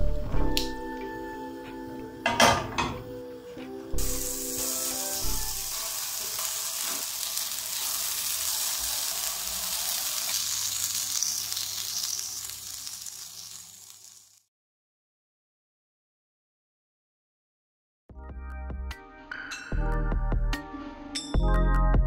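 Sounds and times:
patties sizzling in frying pan: 4.0s - 14.5s.

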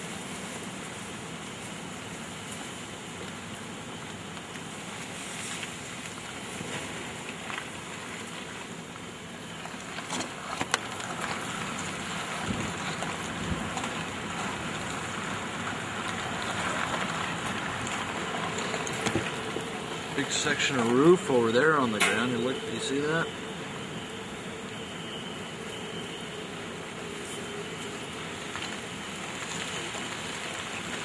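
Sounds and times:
rain: 0.0s - 31.0s
storm wind: 10.3s - 31.0s
wind buffeting microphone: 12.3s - 15.6s.

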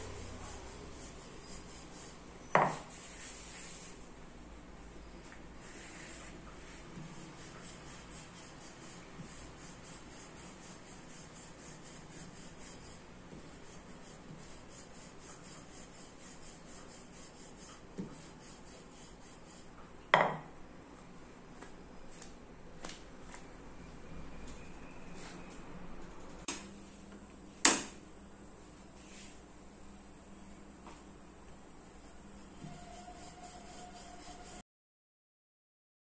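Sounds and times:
rolling pin rubbing on dough: 0.1s - 4.0s, 5.6s - 19.8s, 31.8s - 34.6s.

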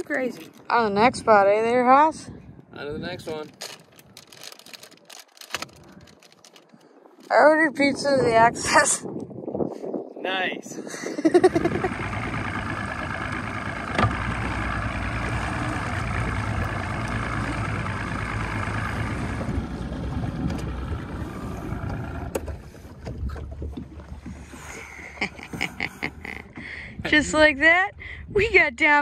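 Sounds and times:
outboard motor idling: 11.3s - 27.7s.

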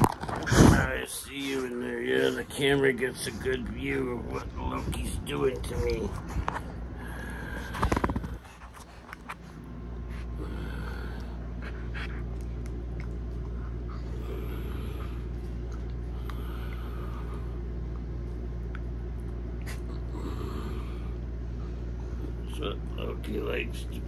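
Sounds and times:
dog snorting and panting: 0.0s - 17.5s, 19.6s - 21.1s
steady low hum: 0.0s - 24.0s.

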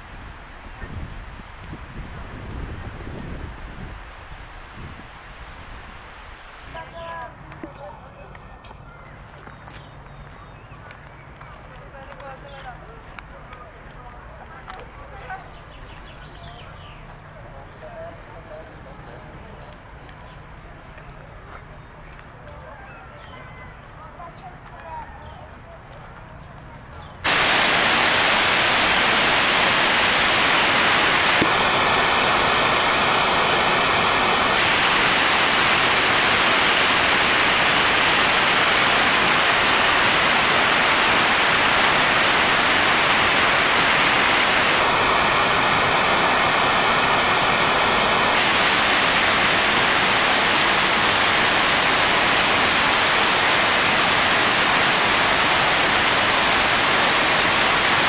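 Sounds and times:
waterfall rushing: 3.4s - 6.8s, 27.2s - 58.0s.

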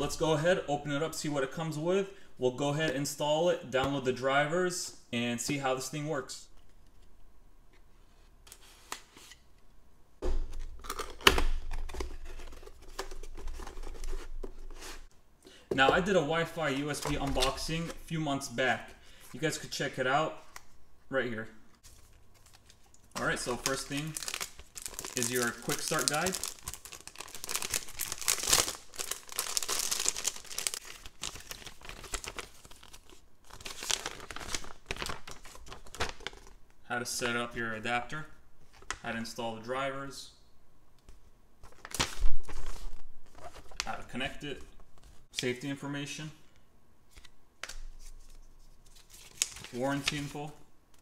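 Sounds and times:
plastic bag crinkling: 21.9s - 36.6s
paper rustling: 47.1s - 50.4s.

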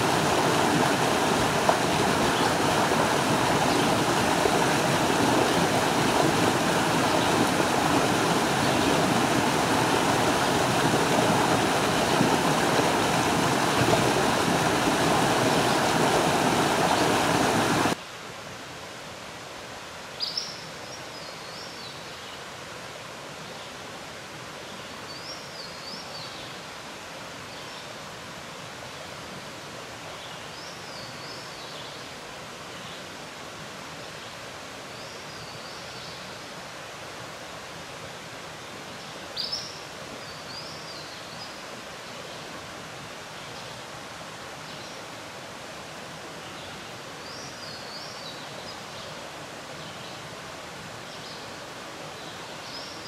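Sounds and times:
songbird singing: 0.0s - 18.0s, 20.1s - 22.5s, 39.0s - 42.5s, 46.4s - 53.0s
stream rushing over rocks: 0.0s - 53.0s.

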